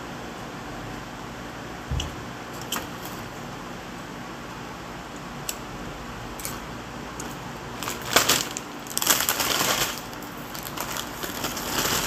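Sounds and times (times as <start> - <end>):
plastic chip bag crinkling: 7.7 - 12.0.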